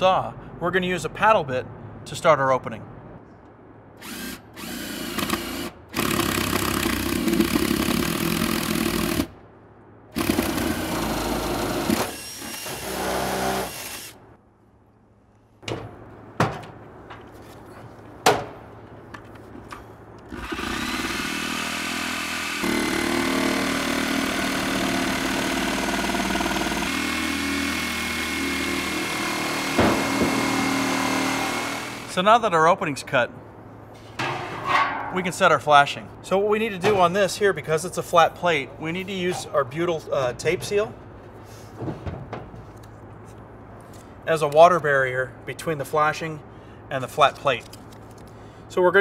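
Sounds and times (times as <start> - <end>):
cordless drill boring: 4.0 - 9.3, 10.2 - 14.2, 20.3 - 32.1
electric saw cutting: 10.2 - 14.2, 20.3 - 32.1.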